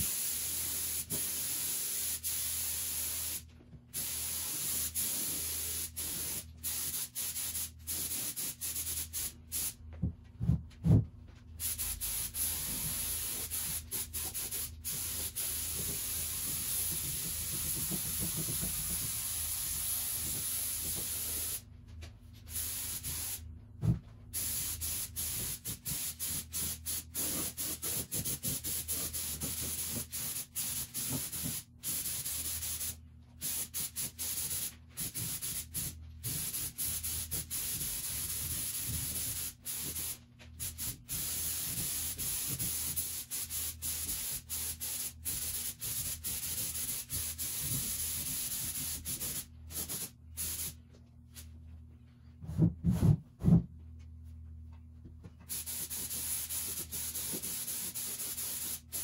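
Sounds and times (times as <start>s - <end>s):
paint spray gun hissing: 11.6s - 21.6s, 24.4s - 50.7s, 55.5s - 59.0s.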